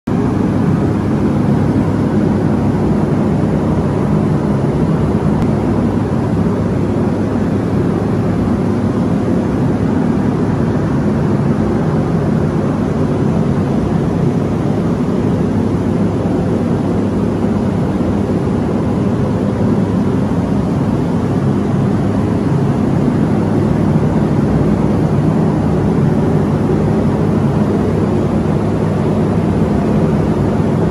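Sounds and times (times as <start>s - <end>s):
ventilation fan drone: 0.1s - 30.9s.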